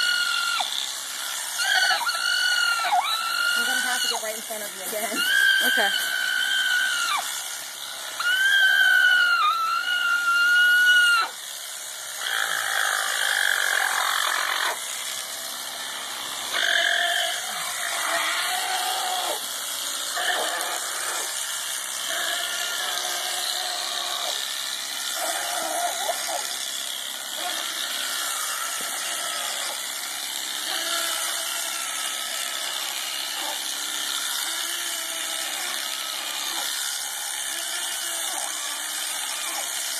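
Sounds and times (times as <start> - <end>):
alpaca screaming: 0.0 - 0.8, 1.5 - 7.5, 8.1 - 11.4, 16.5 - 19.5, 20.1 - 24.4, 25.1 - 30.0, 30.6 - 32.2
electric shears buzzing: 0.0 - 39.9.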